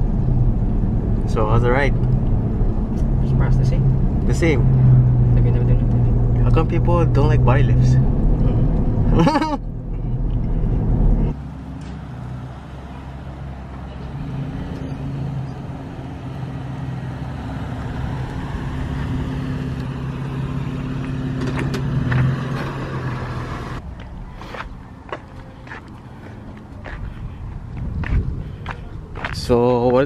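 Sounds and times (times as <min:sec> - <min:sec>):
car cabin rumble: 0:00.0 - 0:11.4
truck engine running: 0:00.0 - 0:23.9.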